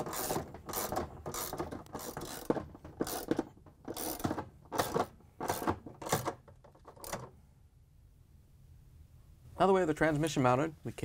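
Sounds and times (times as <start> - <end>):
ratchet wrench clicking: 0.0 - 6.2.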